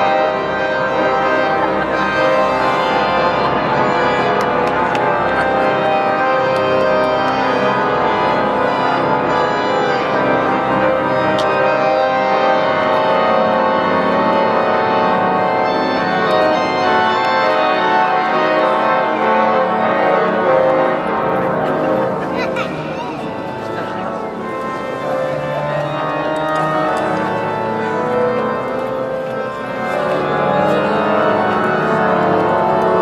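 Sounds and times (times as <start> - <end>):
organ playing sustained chords: 0.0 - 33.0.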